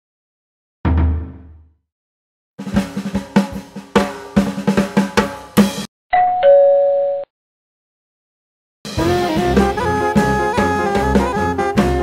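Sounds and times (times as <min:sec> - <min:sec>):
drum fill with cymbal: 0:02.6 - 0:05.9, 0:08.9 - 0:12.0.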